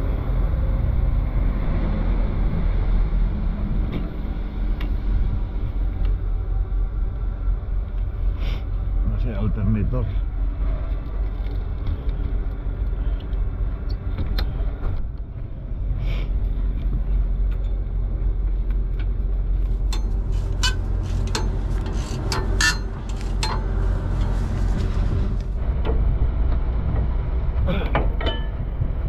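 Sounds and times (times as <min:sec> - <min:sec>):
diesel truck engine idling: 0:12.3 - 0:25.7
sharp clicks and knocks: 0:18.6 - 0:24.4.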